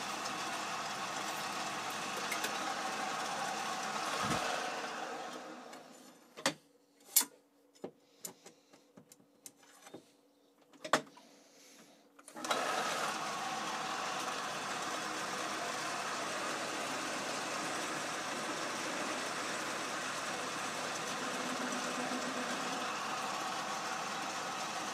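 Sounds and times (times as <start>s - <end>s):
lathe running: 0.0s - 5.9s, 12.4s - 24.9s.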